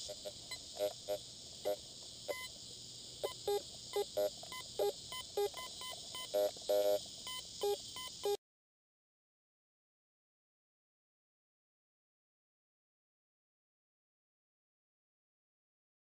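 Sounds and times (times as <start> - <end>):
metal detector beeps: 0.0 - 2.5, 3.2 - 8.4
crickets hissing: 0.0 - 8.4.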